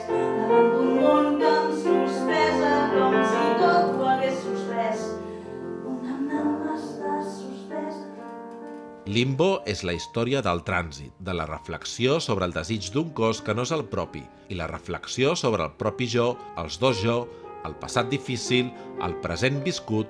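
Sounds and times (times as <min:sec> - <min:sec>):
woman singing: 0:00.0 - 0:05.2, 0:05.8 - 0:08.3
grand piano: 0:00.0 - 0:20.0.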